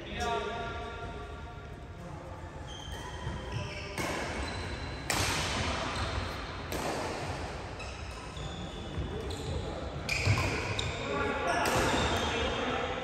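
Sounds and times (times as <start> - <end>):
shoe squeaks: 2.4 - 5.2, 5.8 - 6.4, 7.7 - 12.7
racket hitting shuttlecock: 2.9 - 8.2, 11.6 - 12.1.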